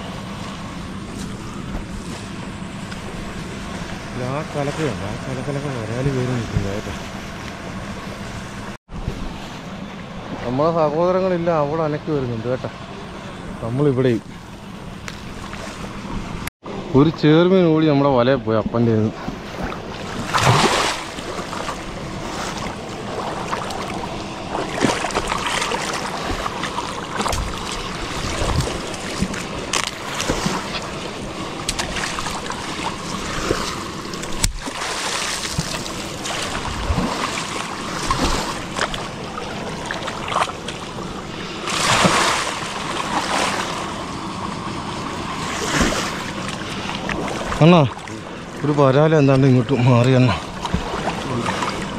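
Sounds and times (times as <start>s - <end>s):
water splashing and sloshing: 0.0s - 16.5s, 18.2s - 51.9s
wind on microphone: 19.1s - 34.7s, 35.4s - 39.3s.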